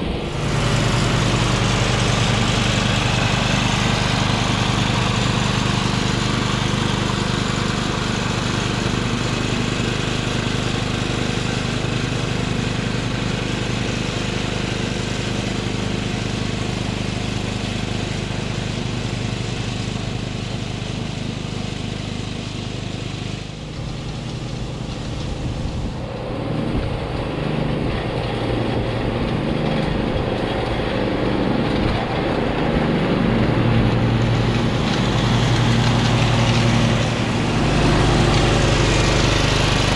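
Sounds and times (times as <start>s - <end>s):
ride-on mower cutting grass: 0.0s - 39.9s.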